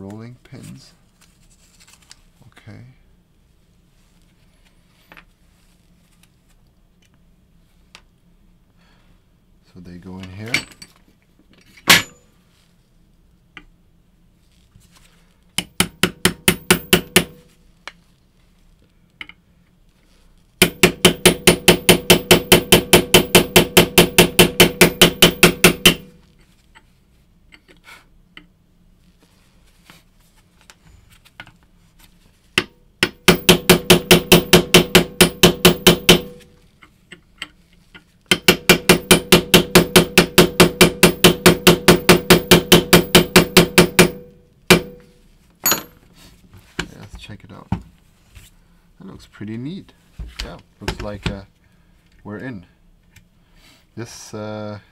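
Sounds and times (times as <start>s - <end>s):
hammer tapping metal punch: 15.6s - 17.4s, 20.6s - 26.2s, 32.6s - 36.5s, 38.3s - 46.0s.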